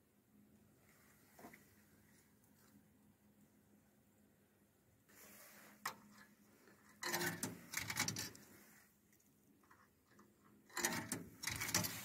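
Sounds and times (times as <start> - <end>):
coins rattling through coin mechanism: 10.8 - 12.0.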